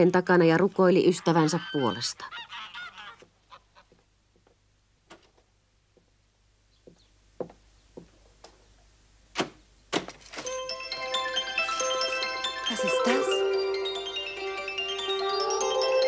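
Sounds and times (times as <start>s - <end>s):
bell-like mallet percussion music: 10.5s - 16.0s.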